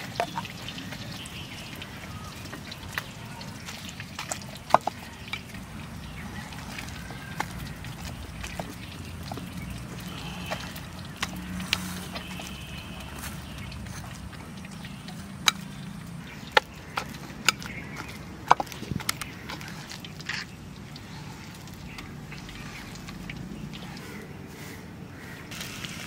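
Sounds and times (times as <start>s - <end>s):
food being mashed by hand: 0.0s - 24.2s
sharp clicks and knocks: 13.7s - 21.0s.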